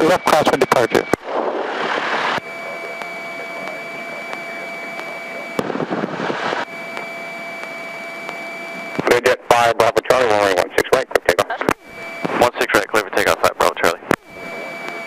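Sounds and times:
rush of radio static: 0.0s - 15.0s
thin whining tones: 2.0s - 5.7s, 6.4s - 10.5s, 11.8s - 15.0s
radio line hiss: 2.1s - 15.0s.

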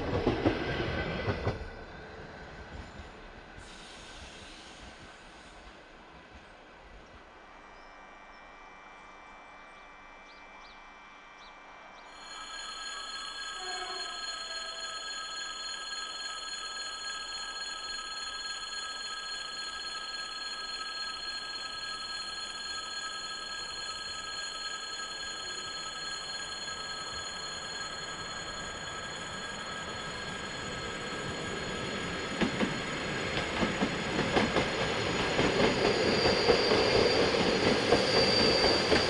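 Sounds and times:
level crossing warning bell: 11.4s - 39.0s.

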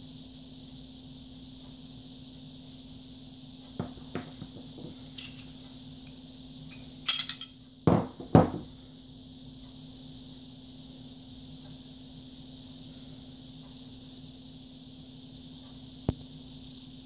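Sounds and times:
steady low hum: 0.0s - 17.0s
parts knocking on countertop: 3.8s - 4.9s, 7.9s - 8.7s
sharp metallic clink: 5.2s - 5.5s, 6.7s - 7.6s
small metal parts clicking: 5.2s - 5.5s, 6.7s - 7.6s.

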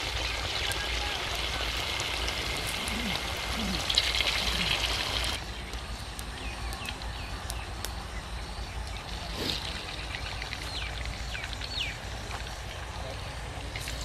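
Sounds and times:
oil sizzling with pops: 0.0s - 13.1s, 13.7s - 14.0s
small birds chirping: 2.5s - 13.4s.

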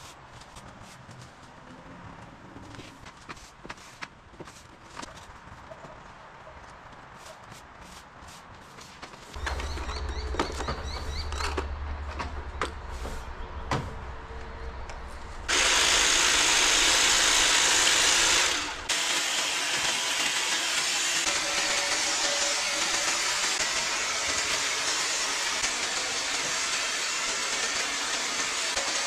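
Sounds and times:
small engine running: 15.5s - 29.0s.

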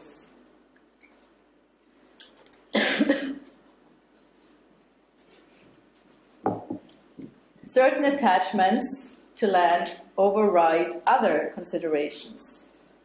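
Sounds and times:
woman coughing: 2.7s - 3.5s.

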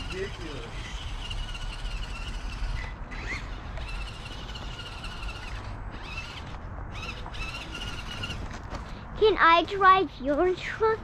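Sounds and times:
toy truck electric motor whining: 0.0s - 8.6s.

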